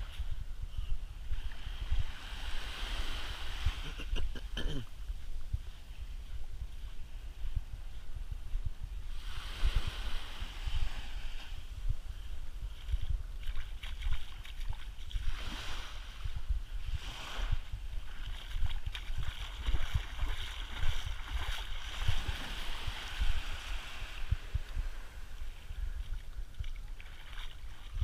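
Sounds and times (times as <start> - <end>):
wind buffeting microphone: 0.0 - 28.0
small waves washing on sand: 1.4 - 4.1, 9.1 - 28.0.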